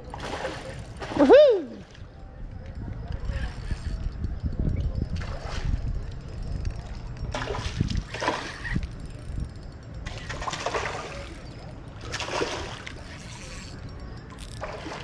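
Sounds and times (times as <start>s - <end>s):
fish splashing and thrashing in water: 7.3s - 8.6s, 10.1s - 11.4s, 12.0s - 13.2s, 14.5s - 15.0s.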